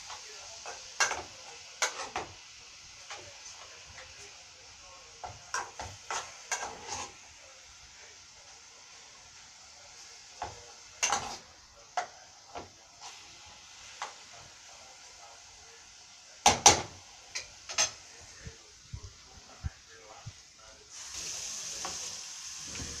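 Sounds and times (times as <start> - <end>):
meat frying hiss: 0.0 - 23.0
utensils and cookware knocking: 1.0 - 2.3, 5.2 - 7.1, 10.4 - 11.4, 16.4 - 18.0.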